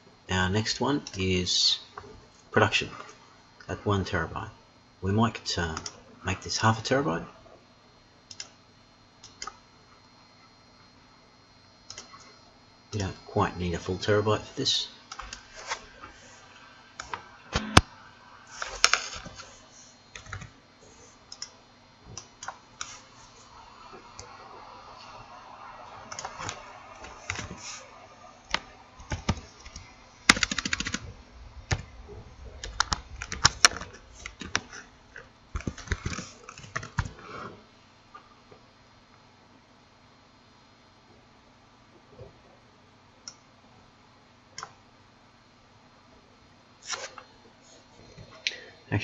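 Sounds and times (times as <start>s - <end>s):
typing on a computer keyboard: 8.3s - 8.5s, 20.2s - 20.5s, 28.5s - 31.1s, 35.6s - 37.1s.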